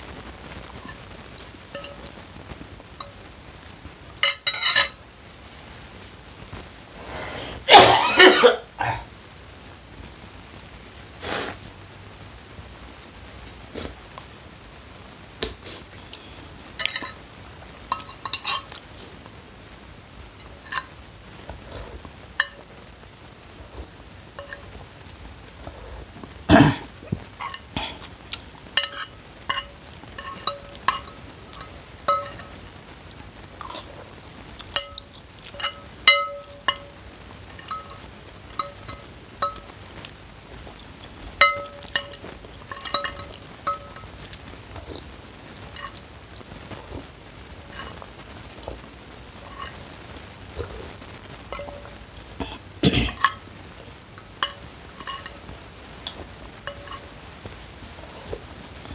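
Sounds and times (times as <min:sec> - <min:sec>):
cutlery clinking against a bowl: 0:01.7 - 0:02.1, 0:04.2 - 0:05.0, 0:16.8 - 0:17.2, 0:17.9 - 0:18.8, 0:22.4 - 0:22.7, 0:24.4 - 0:24.8, 0:27.4 - 0:27.7, 0:28.8 - 0:32.5, 0:34.6 - 0:39.8, 0:41.4 - 0:45.0, 0:45.8 - 0:46.0, 0:47.7 - 0:48.0, 0:49.4 - 0:49.8, 0:51.5 - 0:53.4, 0:54.2 - 0:55.5, 0:56.1 - 0:57.1
mouth sounds while eating: 0:11.2 - 0:11.6, 0:13.4 - 0:14.0, 0:44.2 - 0:45.2, 0:51.6 - 0:53.2.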